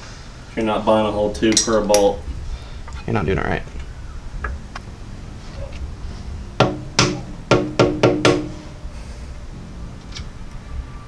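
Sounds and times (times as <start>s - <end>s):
rubber mallet knocking on metal: 6.6s - 8.6s.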